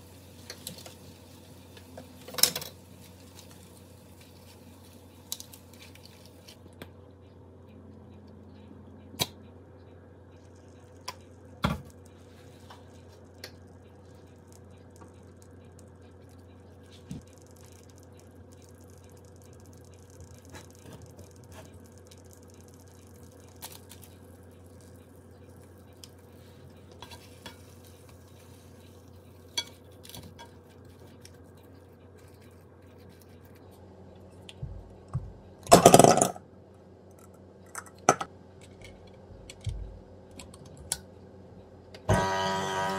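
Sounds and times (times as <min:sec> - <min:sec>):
faint sizzle: 0:00.0 - 0:06.8, 0:10.2 - 0:34.5
steady low hum: 0:00.0 - 0:42.9
utensils tapping a frying pan: 0:26.9 - 0:28.2.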